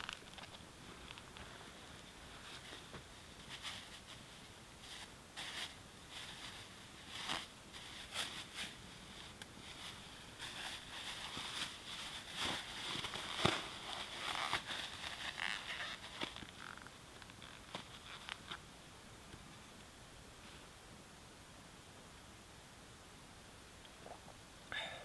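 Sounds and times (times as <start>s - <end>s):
plastic bag crinkling: 0.0s - 1.4s, 9.6s - 18.6s.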